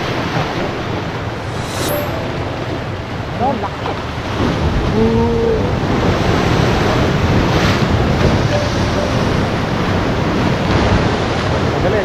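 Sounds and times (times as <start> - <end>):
wind buffeting microphone: 2.7 - 12.0
waves breaking against rocks: 3.4 - 12.0.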